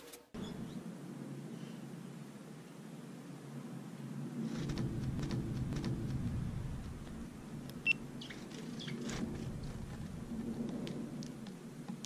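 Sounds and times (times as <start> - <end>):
sparrows chirping: 0.4 - 0.8, 7.3 - 9.9
low rumble: 4.2 - 11.8.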